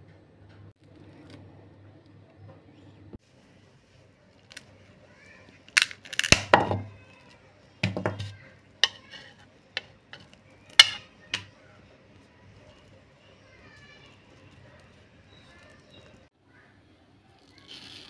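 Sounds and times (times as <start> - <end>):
bowl and utensil knocking: 7.8 - 9.3.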